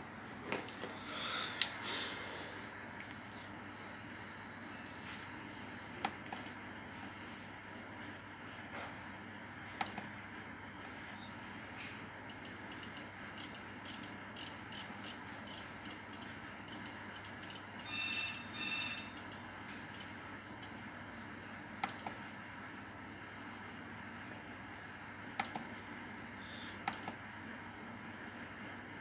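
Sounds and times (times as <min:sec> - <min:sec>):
longer multi-pitch beep: 0:12.3 - 0:20.8
short high beeps: 0:17.2 - 0:19.4.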